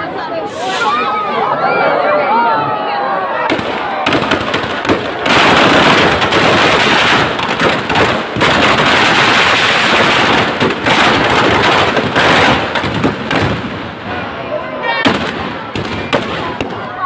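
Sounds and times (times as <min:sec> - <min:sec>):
firecrackers banging rapidly: 0:03.5 - 0:14.4, 0:15.0 - 0:17.0.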